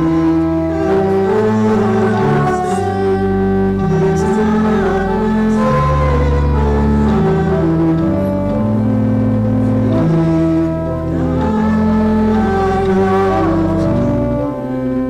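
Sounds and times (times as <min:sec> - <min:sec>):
church organ playing hymn: 0:00.0 - 0:15.0.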